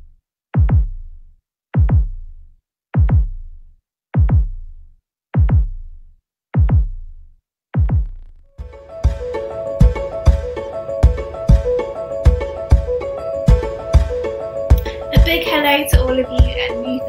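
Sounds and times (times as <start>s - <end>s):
heartbeat thumps: 0.6s - 1.1s, 1.8s - 2.3s, 3.0s - 3.5s, 4.2s - 4.7s, 5.4s - 5.9s, 6.6s - 7.1s, 7.7s - 8.3s, 9.1s - 16.7s.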